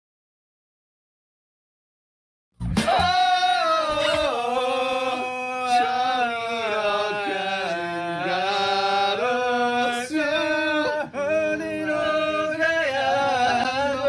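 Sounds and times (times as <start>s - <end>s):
men singing together: 2.8s - 14.0s.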